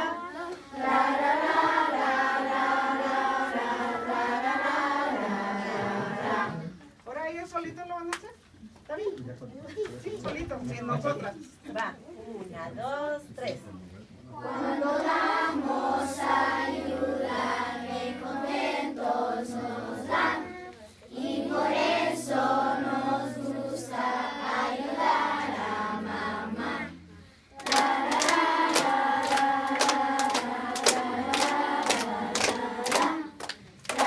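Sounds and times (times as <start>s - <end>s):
children's choir singing: 0.0s - 6.8s, 14.4s - 34.0s
hands clapping: 27.6s - 34.0s.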